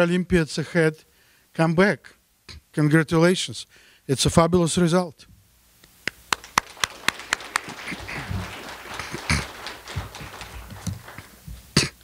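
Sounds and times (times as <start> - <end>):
close sharp claps: 5.8 - 12.0
audience applauding: 6.1 - 11.9.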